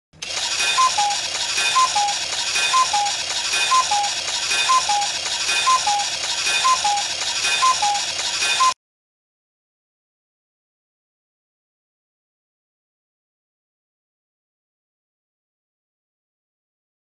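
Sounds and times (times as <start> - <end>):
clock mechanism clicking and rattling: 0.2 - 8.8
cuckoo clock call: 0.4 - 8.8.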